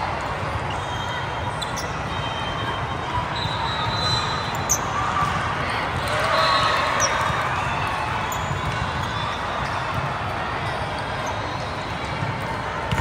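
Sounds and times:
hubbub of voices: 0:00.0 - 0:13.0
volleyballs bouncing and smacking: 0:08.1 - 0:13.0.

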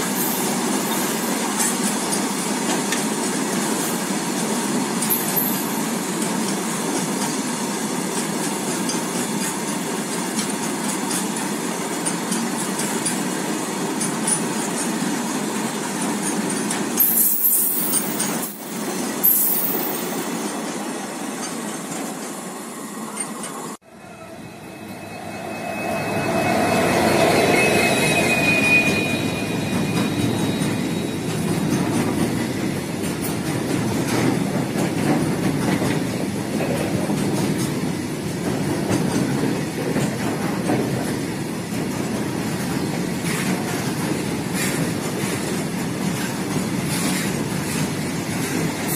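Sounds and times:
freight train wheels rumbling on rails: 0:00.0 - 0:48.9
high wheel squeals: 0:22.7 - 0:32.2.

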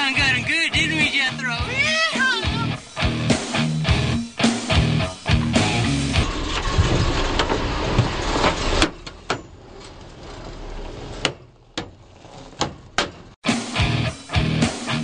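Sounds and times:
truck drivetrain under load: 0:05.1 - 0:13.4.

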